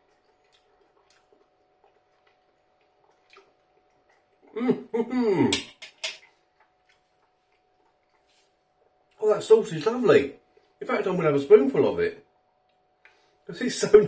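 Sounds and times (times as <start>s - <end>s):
man humming while chewing: 4.3s - 5.7s.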